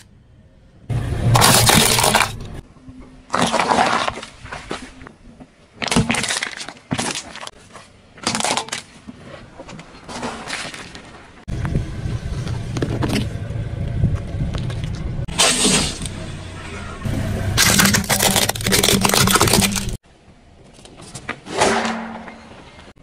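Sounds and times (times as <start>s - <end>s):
tyre crunching objects: 1.3s - 2.6s, 3.2s - 11.4s, 17.6s - 20.0s
car rolling rumble: 11.4s - 20.0s.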